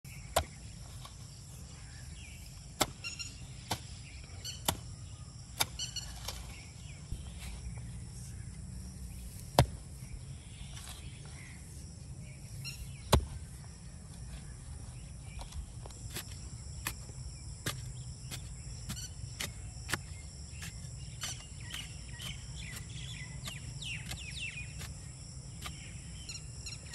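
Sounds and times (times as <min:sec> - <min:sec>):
hoe chopping into soil: 0:00.2 - 0:01.3, 0:02.7 - 0:06.7, 0:09.4 - 0:10.1, 0:15.4 - 0:26.0
insect chirring: 0:15.9 - 0:26.9.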